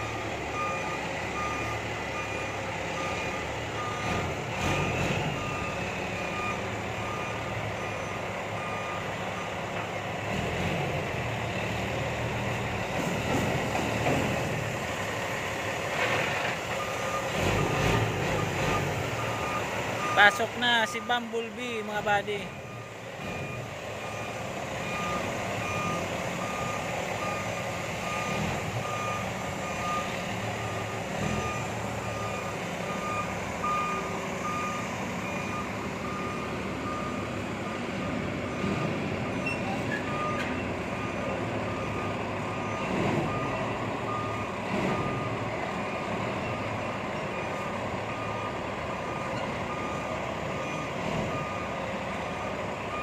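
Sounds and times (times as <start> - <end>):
diesel engine running: 0.0 - 53.0
truck reversing alarm beeping: 0.0 - 53.0.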